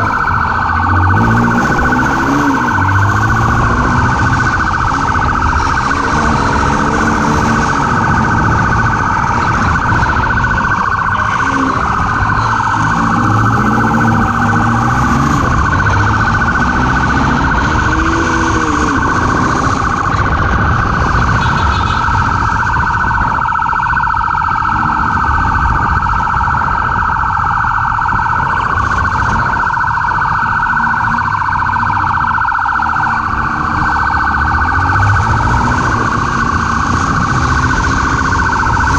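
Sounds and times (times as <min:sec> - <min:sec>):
motorcycle engine: 0:00.0 - 0:24.2
warbling motorcycle siren: 0:00.0 - 0:38.9
wind noise: 0:00.0 - 0:38.9.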